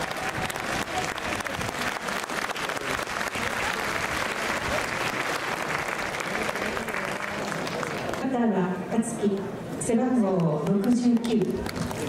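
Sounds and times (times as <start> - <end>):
crowd applauding: 0.0 - 8.2, 10.9 - 12.0.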